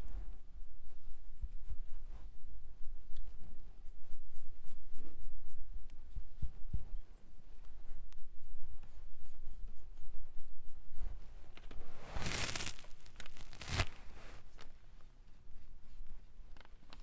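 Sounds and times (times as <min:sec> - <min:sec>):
paintbrush strokes: 0:07.8 - 0:16.4
paper rustling: 0:11.6 - 0:14.7.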